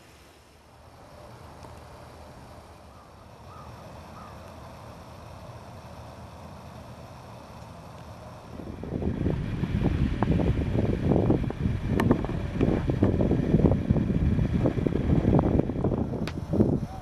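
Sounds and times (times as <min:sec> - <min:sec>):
wind buffeting microphone: 0:08.2 - 0:17.0.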